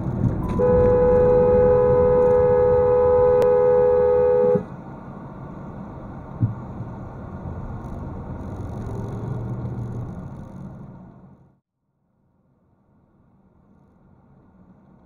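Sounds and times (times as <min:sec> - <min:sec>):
low engine and road rumble: 0:00.0 - 0:11.6, 0:12.4 - 0:15.0
car horn two-note blast: 0:00.4 - 0:04.7
thump: 0:06.4 - 0:06.6.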